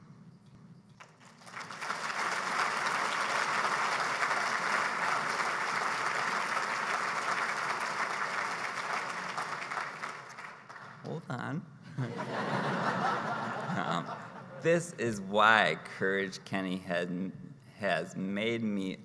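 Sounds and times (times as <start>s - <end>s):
audience applauding: 1.0s - 11.2s.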